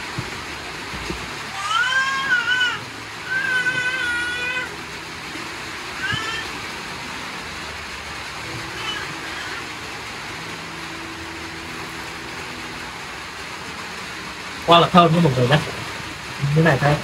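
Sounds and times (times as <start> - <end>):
steady hiss: 0.0 - 17.0
cat meowing: 1.6 - 4.7, 6.0 - 6.5.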